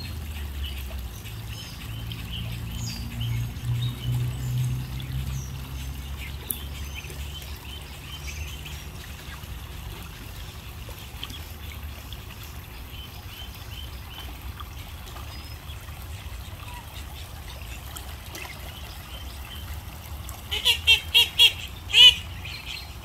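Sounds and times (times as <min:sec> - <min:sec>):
water trickling into a pond: 0:00.0 - 0:23.0.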